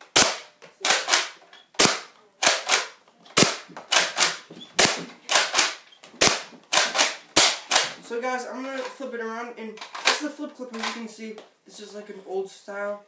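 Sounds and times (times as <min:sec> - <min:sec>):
plastic blaster clacks: 0:00.1 - 0:08.0.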